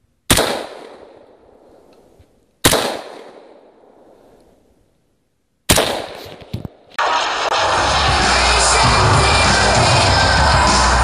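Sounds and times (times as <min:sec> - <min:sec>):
rifle gunshots echoing: 0:00.3 - 0:01.9, 0:02.6 - 0:04.3, 0:05.7 - 0:06.4.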